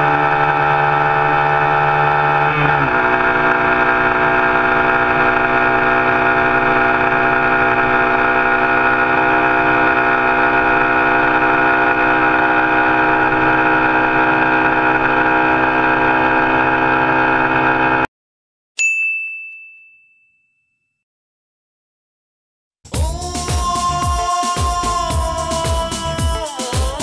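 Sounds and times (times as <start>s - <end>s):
motorcycle engine at full throttle: 0.0s - 18.1s
bright ding: 18.8s - 21.0s.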